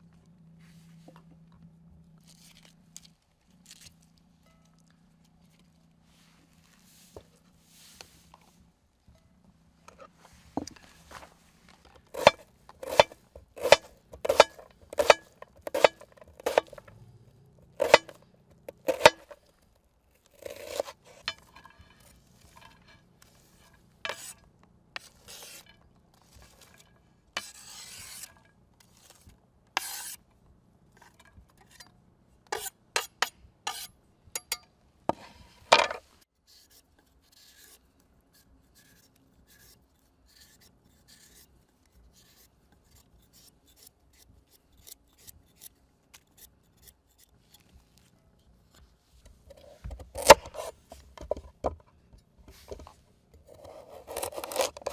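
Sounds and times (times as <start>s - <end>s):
clinks and scrapes of utensils: 20.4s - 24.4s.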